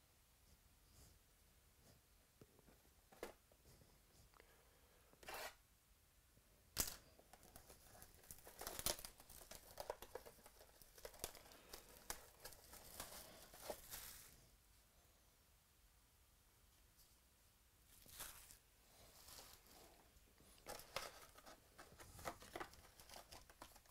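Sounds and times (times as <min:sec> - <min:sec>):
plastic wrap tearing and crinkling: 0:07.4 - 0:14.4, 0:18.0 - 0:18.6, 0:20.7 - 0:23.9.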